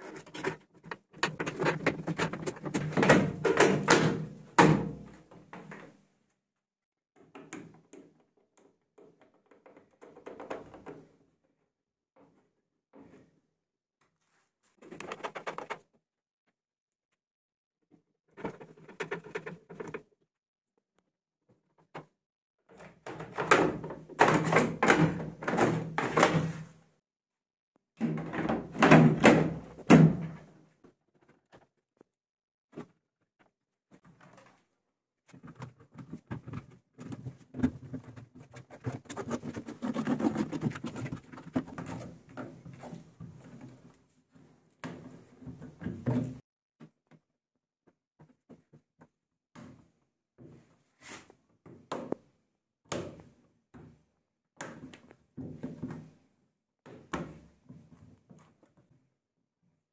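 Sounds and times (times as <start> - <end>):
plastic scraping and knocks: 0.0 - 4.2, 35.3 - 43.8.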